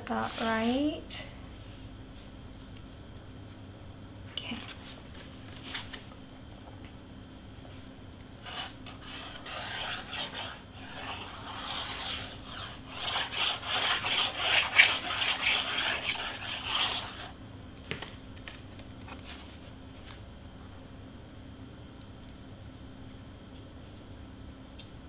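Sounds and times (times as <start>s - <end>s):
cardstock being rubbed: 8.4s - 17.3s.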